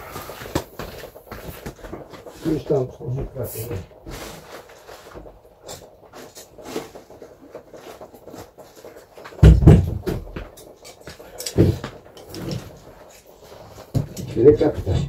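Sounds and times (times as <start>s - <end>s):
faint clicks and knocks on pipework: 5.3s - 14.7s.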